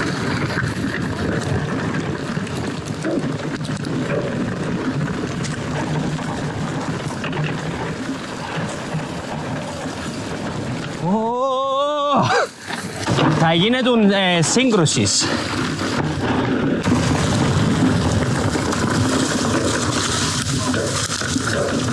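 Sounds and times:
bike rattling: 0:00.0 - 0:21.9
bike tyres rolling on dirt: 0:00.0 - 0:21.9
person shouting: 0:11.0 - 0:12.5.

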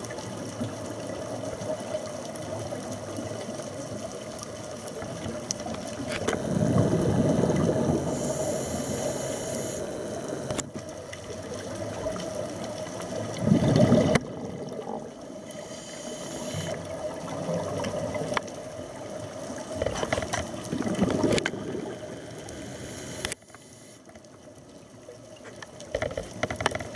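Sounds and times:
exhaled bubbles rushing: 0:06.3 - 0:08.5, 0:10.0 - 0:15.6, 0:16.7 - 0:18.9, 0:20.5 - 0:22.5
diver breathing underwater: 0:06.4 - 0:10.6, 0:15.4 - 0:16.9, 0:22.3 - 0:24.0.

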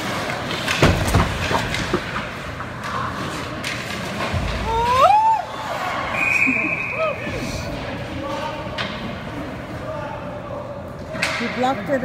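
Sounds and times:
hockey sticks clacking: 0:00.0 - 0:05.0, 0:07.7 - 0:09.8, 0:10.8 - 0:12.0
skates scraping ice: 0:00.0 - 0:05.9.

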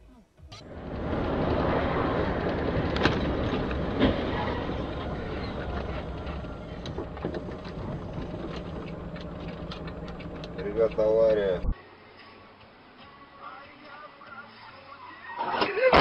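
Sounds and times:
tyre and road noise: 0:00.4 - 0:11.8
sharp crash bangs: 0:01.0 - 0:08.2
light ticks: 0:06.4 - 0:11.4.

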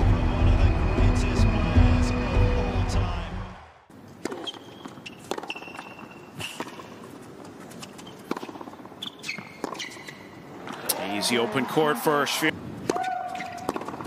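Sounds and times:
sneaker squeaks on court: 0:04.2 - 0:07.0, 0:07.7 - 0:10.4, 0:12.9 - 0:14.0
racket striking tennis ball: 0:04.2 - 0:07.1, 0:07.8 - 0:10.1, 0:12.8 - 0:14.0.

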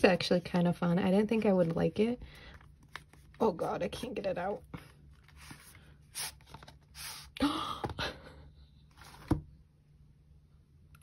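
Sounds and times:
paper and cardboard rustling: 0:01.5 - 0:07.2.

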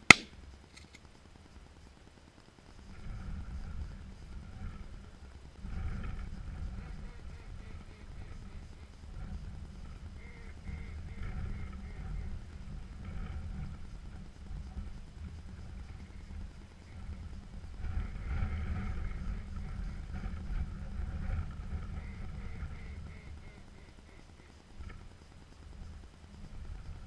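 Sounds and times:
wind rumble on microphone: 0:01.2 - 0:27.0
geese calling: 0:05.7 - 0:25.1.

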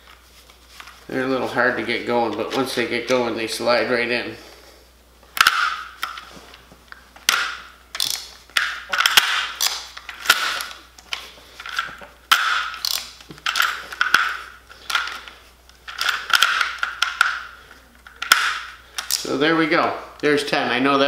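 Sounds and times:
cartridges scraping and clicking into magazine: 0:07.3 - 0:10.8, 0:11.6 - 0:19.3.

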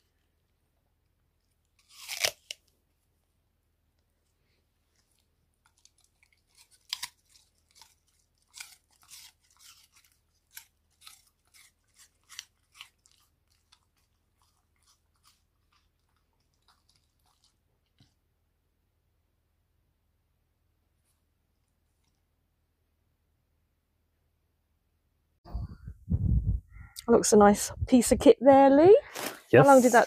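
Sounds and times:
dog crunching apple: 0:01.8 - 0:02.7, 0:05.7 - 0:18.2.

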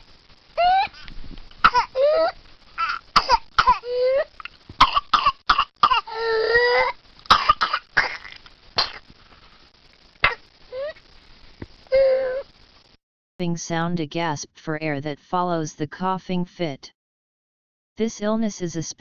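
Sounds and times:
child coughing: 0:02.8 - 0:03.8, 0:07.3 - 0:08.2.

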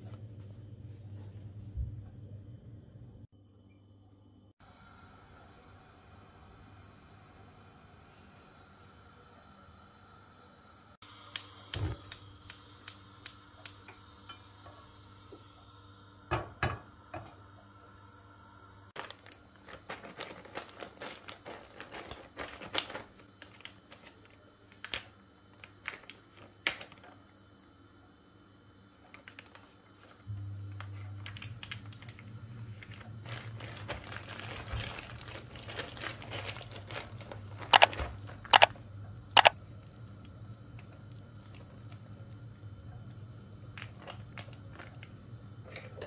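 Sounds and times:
low steady hum: 0:00.0 - 0:21.6, 0:30.0 - 0:46.0
plastic bag crinkling: 0:19.0 - 0:24.4, 0:32.8 - 0:38.6.

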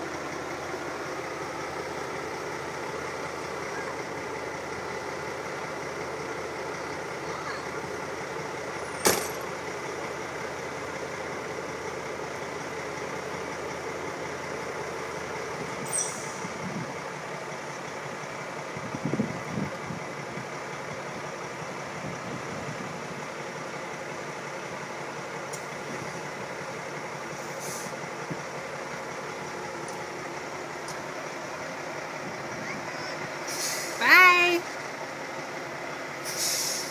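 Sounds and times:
truck diesel engine running: 0:00.0 - 0:36.9
air brake hisses: 0:27.4 - 0:28.0, 0:33.4 - 0:34.0, 0:36.2 - 0:36.9.

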